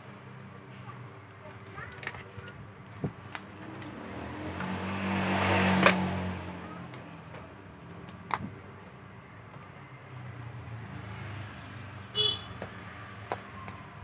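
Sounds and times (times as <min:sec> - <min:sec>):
vehicle engine passing by: 0:03.5 - 0:07.0, 0:10.2 - 0:12.0.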